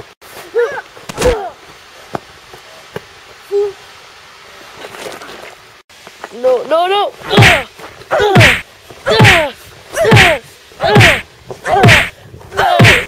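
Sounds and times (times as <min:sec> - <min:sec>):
high voice crying out: 0:07.3 - 0:13.0.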